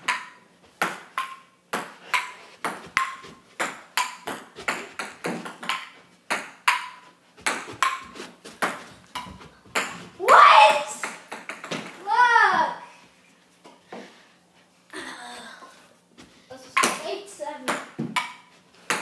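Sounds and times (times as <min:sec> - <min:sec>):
table tennis ball hits: 0:00.0 - 0:12.0, 0:16.8 - 0:17.0, 0:17.6 - 0:19.0.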